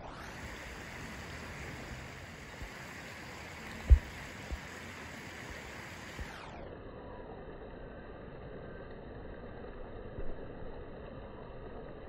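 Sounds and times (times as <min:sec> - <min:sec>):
flowing river water: 0:00.0 - 0:12.0
low thumps: 0:03.8 - 0:04.7.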